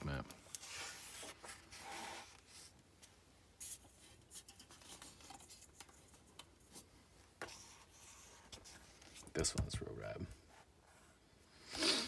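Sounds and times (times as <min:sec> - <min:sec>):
fingers rustling book pages: 0:00.4 - 0:09.5.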